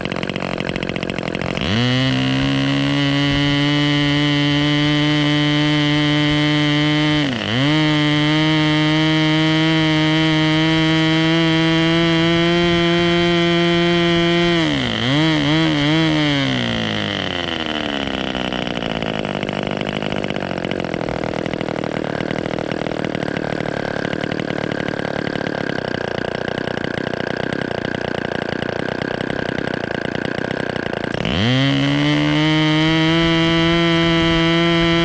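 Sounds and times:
model airplane engine: 0:00.0 - 0:35.0.

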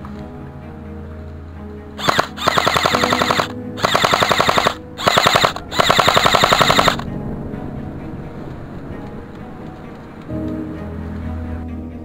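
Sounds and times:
airsoft rifle firing bursts: 0:02.0 - 0:07.0.

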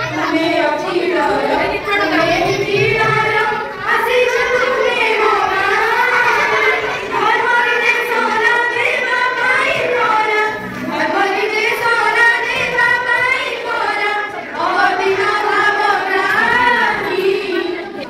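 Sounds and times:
young female voices singing: 0:00.0 - 0:18.0.

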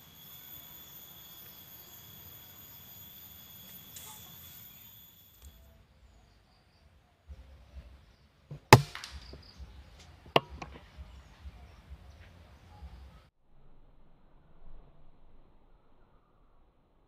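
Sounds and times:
air rifle shot: 0:08.5 - 0:09.5.

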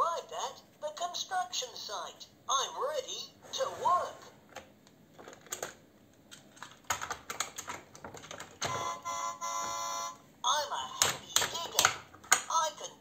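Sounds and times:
plastic toy parts rattling: 0:05.2 - 0:08.7
electronic buzzing tone: 0:08.7 - 0:10.2.

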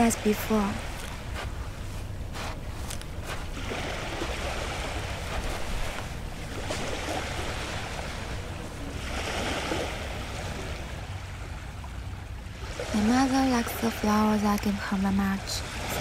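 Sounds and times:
sea waves washing onto beach: 0:00.0 - 0:11.2
wind rumble on microphone: 0:00.0 - 0:13.1.

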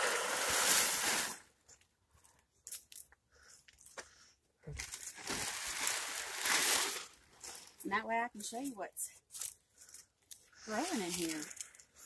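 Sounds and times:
row cover rustling and crinkling: 0:04.7 - 0:11.8.

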